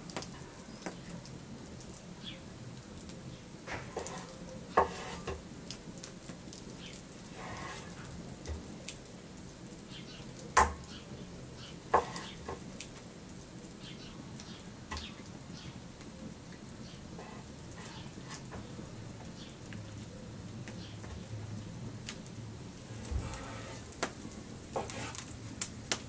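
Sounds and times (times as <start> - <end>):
wood fire crackling: 0.0 - 26.0.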